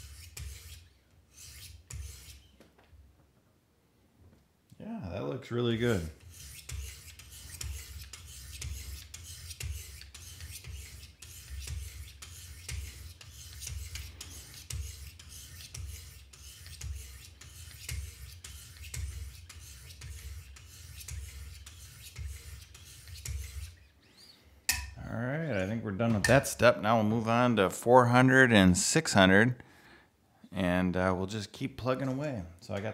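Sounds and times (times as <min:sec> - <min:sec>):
sharpening stone scraping knife blade: 0:00.0 - 0:02.5, 0:06.2 - 0:23.8.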